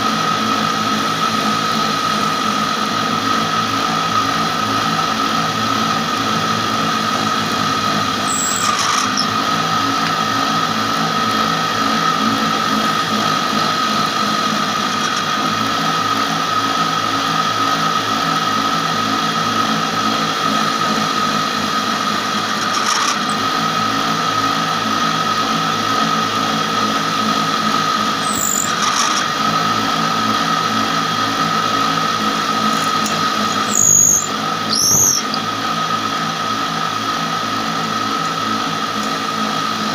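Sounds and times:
wood-shaping machine whine: 0:00.0 - 0:39.9
high squeals of wood cutting: 0:08.0 - 0:09.6, 0:22.4 - 0:24.0, 0:27.9 - 0:29.5, 0:32.4 - 0:35.9.

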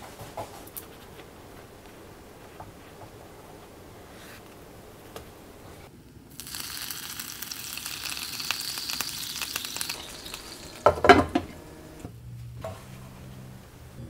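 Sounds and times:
water sizzling in hot pan: 0:06.3 - 0:11.6.

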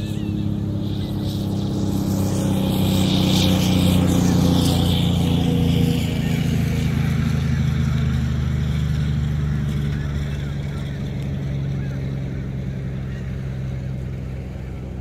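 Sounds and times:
engine humming: 0:00.0 - 0:15.0.

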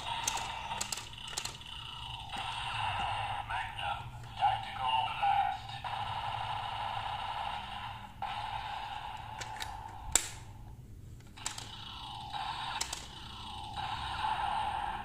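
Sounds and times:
toy gun click: 0:12.8 - 0:13.1.

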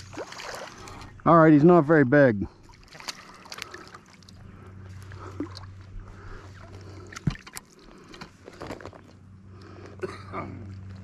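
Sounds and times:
light water splashes: 0:00.0 - 0:01.2, 0:01.9 - 0:08.4
low steady hum: 0:00.0 - 0:11.0.

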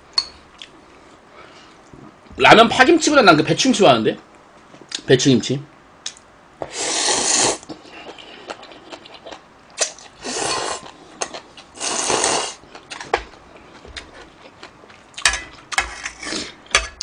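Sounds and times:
person slurping noodles: 0:06.7 - 0:08.8, 0:10.2 - 0:10.9, 0:11.8 - 0:12.6
chewing: 0:07.7 - 0:09.4.

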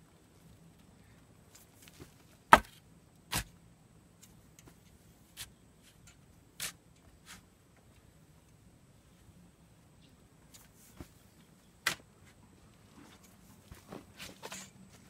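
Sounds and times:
shovel scraping stony soil: 0:06.6 - 0:07.4.

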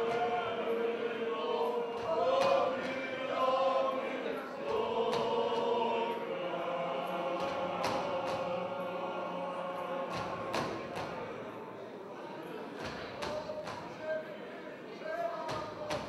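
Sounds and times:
group of voices singing: 0:00.0 - 0:11.8.

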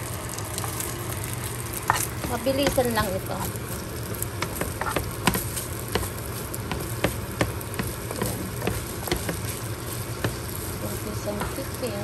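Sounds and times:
rice sizzling in a pan: 0:00.0 - 0:12.0
utensil scraping a pan: 0:04.4 - 0:07.2.

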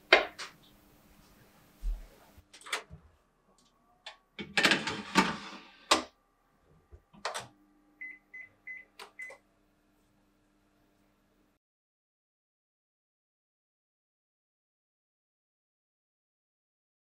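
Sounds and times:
short high oven beeps: 0:08.0 - 0:09.4.

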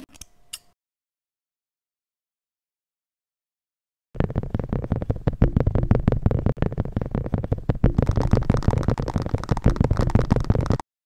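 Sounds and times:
crackling taps and rubs: 0:04.2 - 0:10.8
deep thumps: 0:04.2 - 0:10.8.

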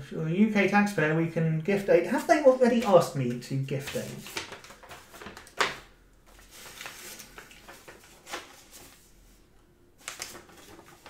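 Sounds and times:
sharp paper crackle: 0:03.7 - 0:09.2, 0:10.0 - 0:11.0
paper rustling: 0:03.7 - 0:09.4, 0:10.0 - 0:11.0.

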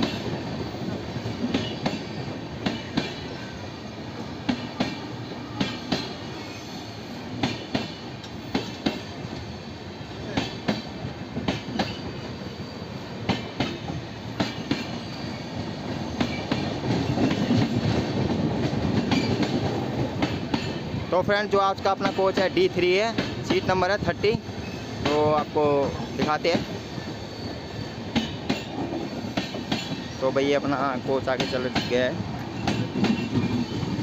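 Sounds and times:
train wheels rumbling: 0:00.0 - 0:34.0
wheels clacking over rail joints: 0:01.2 - 0:03.4, 0:13.3 - 0:15.2, 0:16.2 - 0:24.0, 0:28.0 - 0:30.2, 0:31.2 - 0:34.0.

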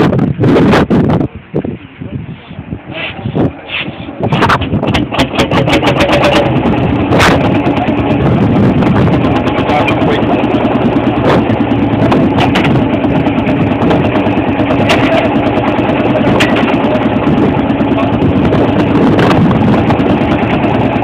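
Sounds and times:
diesel tractor engine idling: 0:03.2 - 0:21.0
sharp knocks: 0:12.2 - 0:12.9.

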